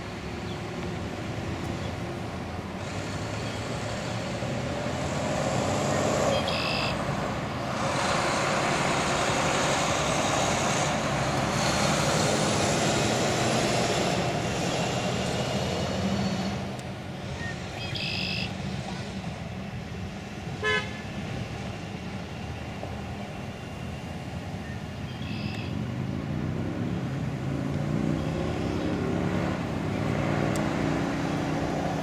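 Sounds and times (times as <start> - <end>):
cars driving past: 0.0 - 32.0.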